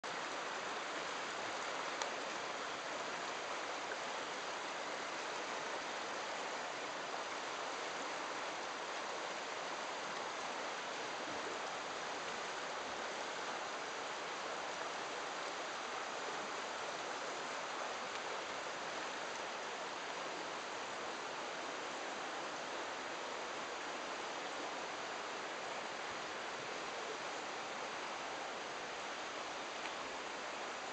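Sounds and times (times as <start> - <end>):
river water rushing: 0.0 - 30.9.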